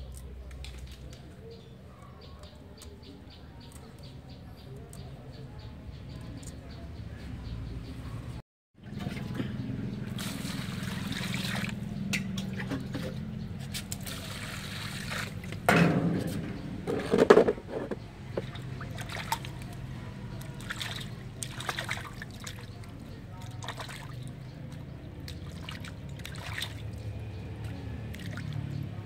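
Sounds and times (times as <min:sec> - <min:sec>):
water sloshing: 0:08.8 - 0:29.0
water pouring into a metal bowl: 0:10.1 - 0:11.8, 0:14.0 - 0:15.5.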